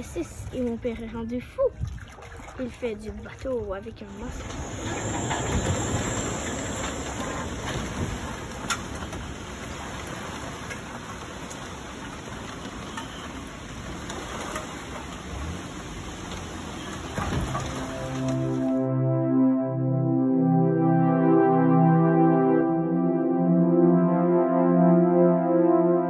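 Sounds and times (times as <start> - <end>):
rain on canvas: 4.3 - 18.8.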